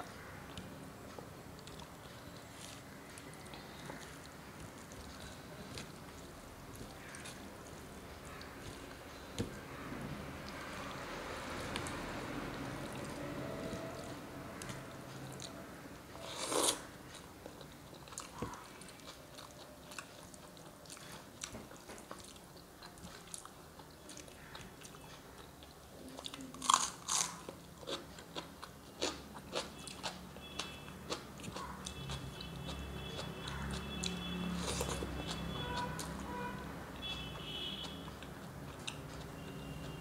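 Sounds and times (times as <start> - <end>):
crunchy bites and chewing: 26.5 - 35.6.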